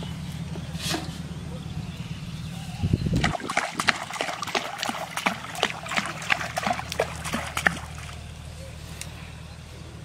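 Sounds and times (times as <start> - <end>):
fish splashing in water: 3.2 - 8.3.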